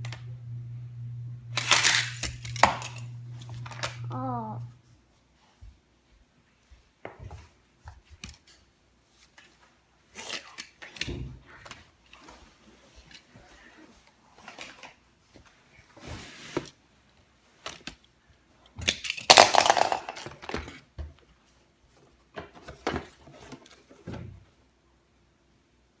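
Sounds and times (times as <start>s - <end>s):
plastic clatter: 18.8s - 20.9s.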